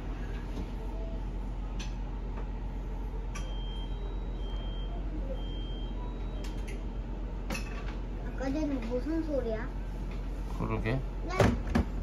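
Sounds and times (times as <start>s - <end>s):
high electronic warning beeps: 3.4s - 6.7s.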